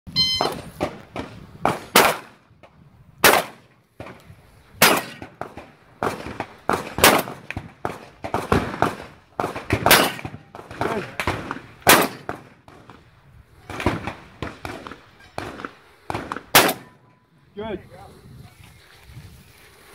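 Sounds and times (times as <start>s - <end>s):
shotgun shots: 0.4s - 2.4s, 3.2s - 4.2s, 4.8s - 13.0s, 13.7s - 17.0s
metallic clacks of steel targets: 9.8s - 10.5s.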